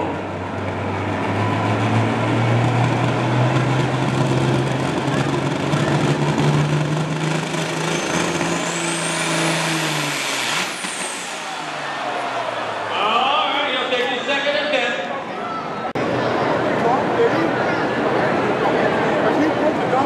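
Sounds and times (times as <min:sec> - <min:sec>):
diesel engine revving under load: 0:00.0 - 0:12.9
turbocharger whistle: 0:07.6 - 0:12.8.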